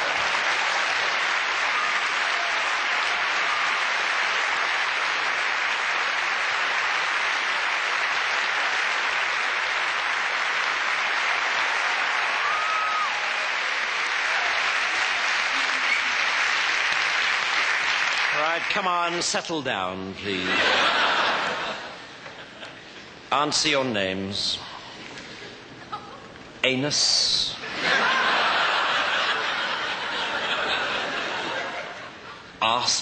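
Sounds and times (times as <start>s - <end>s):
audience applauding: 0.0s - 19.3s.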